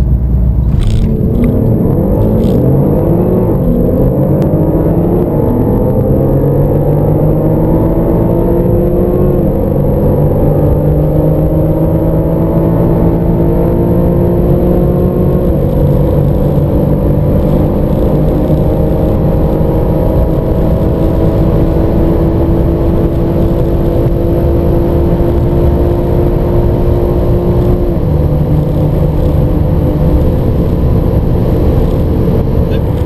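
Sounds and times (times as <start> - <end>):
car engines accelerating: 0.0 - 33.0.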